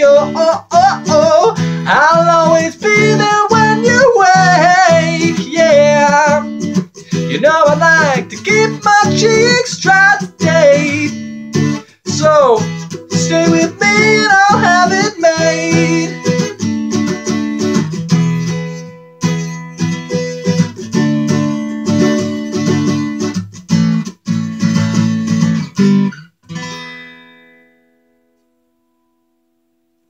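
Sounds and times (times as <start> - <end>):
person singing wordlessly: 0.0 - 16.6
acoustic guitar strumming: 0.0 - 30.0.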